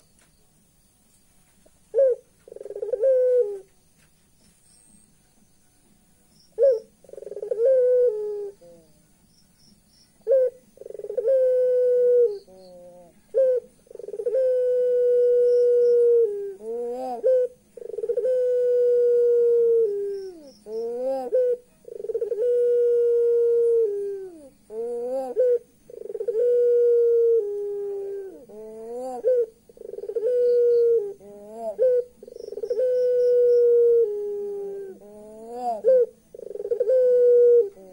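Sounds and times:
dove laughing call: 10.3 - 37.9.

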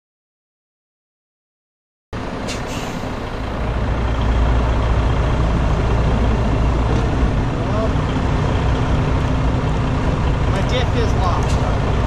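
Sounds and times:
road noise: 2.1 - 12.0
truck engine drone: 2.2 - 12.0
brief air hisses: 2.5 - 3.2.

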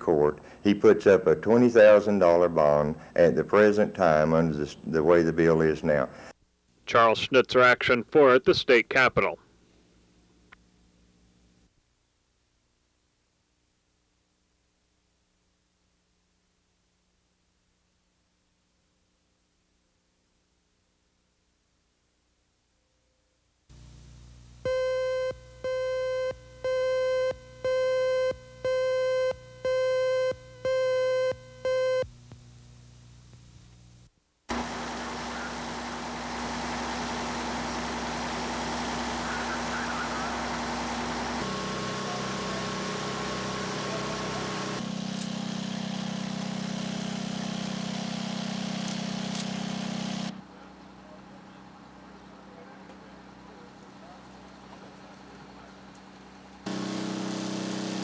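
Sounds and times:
fire engine motor droning: 34.5 - 58.0.

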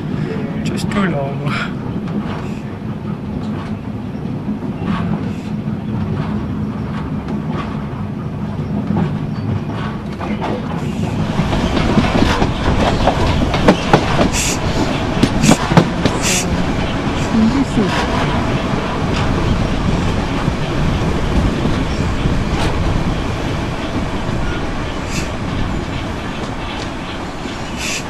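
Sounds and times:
train wheels rumbling on rails: 0.0 - 28.0
clicks from rail joints: 2.0 - 16.4, 25.1 - 28.0.

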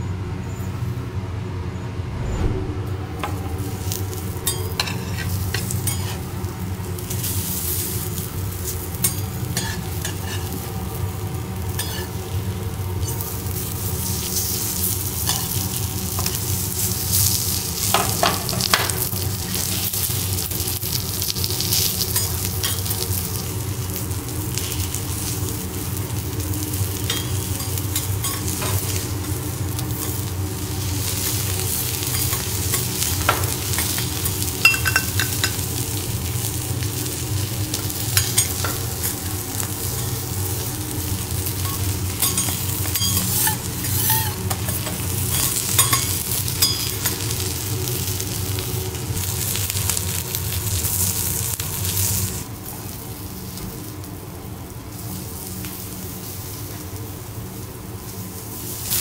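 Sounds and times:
garlic sizzling on griddle: 3.3 - 59.0
metal spatulas scraping griddle: 4.5 - 6.3, 41.6 - 46.9.

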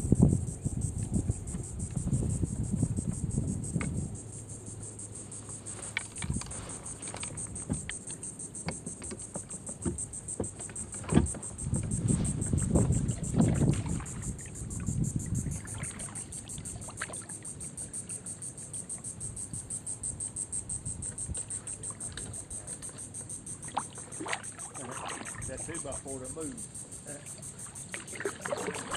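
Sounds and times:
high-pitched insect trill: 0.0 - 28.9
kayak paddle strokes: 5.4 - 17.4, 21.0 - 28.9
water dripping and splashing: 15.5 - 17.4, 23.6 - 26.1, 27.6 - 28.9.

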